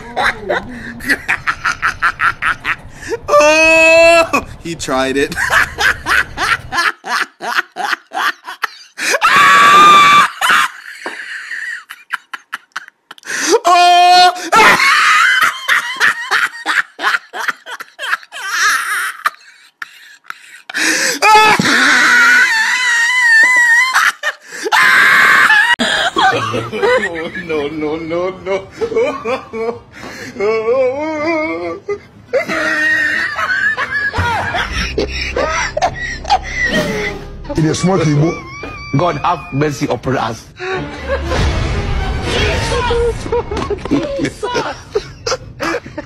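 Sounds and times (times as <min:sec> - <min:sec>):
person laughing hard: 0:00.0 - 0:03.6, 0:05.3 - 0:13.6, 0:14.4 - 0:27.5, 0:31.6 - 0:39.6, 0:43.0 - 0:46.0
low hum: 0:00.0 - 0:07.1, 0:32.5 - 0:39.6
snickering laughter: 0:38.0 - 0:39.4.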